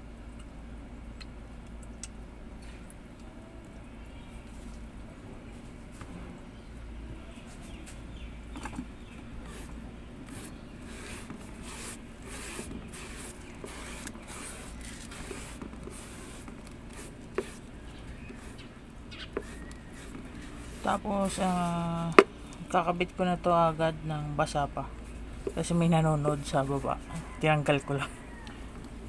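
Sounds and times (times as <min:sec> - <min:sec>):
paintbrush strokes scraping: 0:09.4 - 0:22.3, 0:25.0 - 0:28.1.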